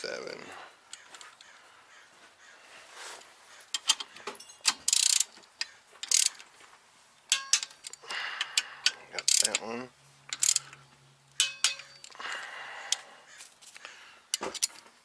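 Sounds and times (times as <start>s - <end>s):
torque wrench ratcheting: 4.7s - 5.3s, 6.0s - 6.4s, 7.3s - 9.7s, 10.3s - 10.8s.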